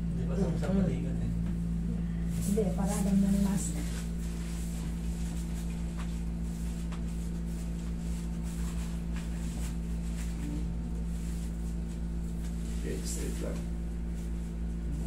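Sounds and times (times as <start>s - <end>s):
air conditioner humming: 0.0s - 15.0s.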